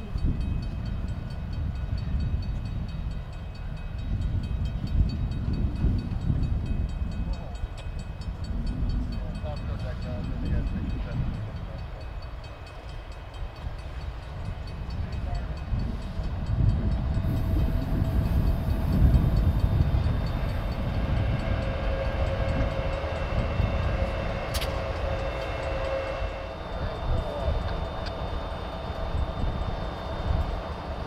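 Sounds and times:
diesel locomotives passing: 0.0s - 31.0s
steady whining tones: 6.2s - 31.0s.

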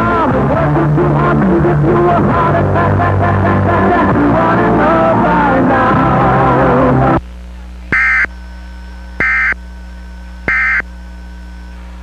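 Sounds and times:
background music: 0.0s - 7.2s
mains hum: 0.0s - 12.0s
digital data tone bursts: 7.9s - 11.9s.

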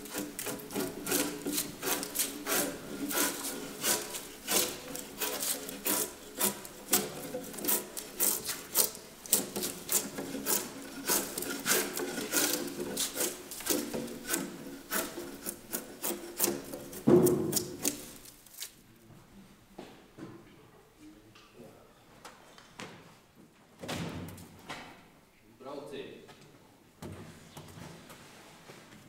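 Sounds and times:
drawknife scraping wood: 0.0s - 18.8s.

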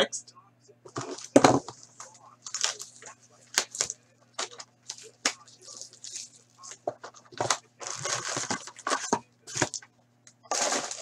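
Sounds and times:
cellophane wrap crinkling: 0.9s - 9.8s, 10.5s - 11.0s.

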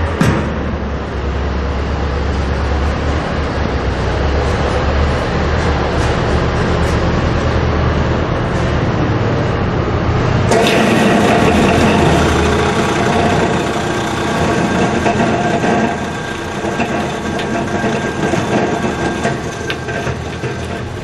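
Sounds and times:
food chopper motor churning: 10.5s - 21.0s.

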